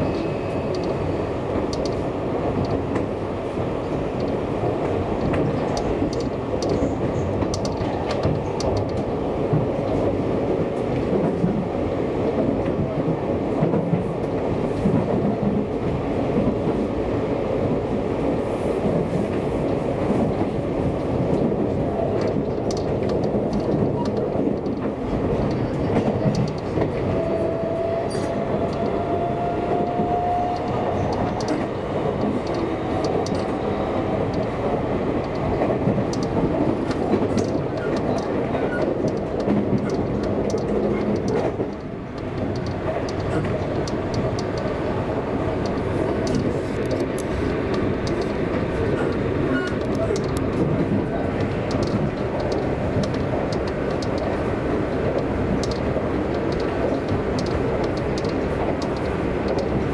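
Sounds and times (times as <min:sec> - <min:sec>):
train wheels rumbling on rail: 0:00.0 - 0:59.9
clicks over rail joints: 0:04.2 - 0:11.6, 0:18.9 - 0:27.1, 0:29.7 - 0:33.6, 0:34.2 - 0:45.0, 0:45.6 - 0:59.9.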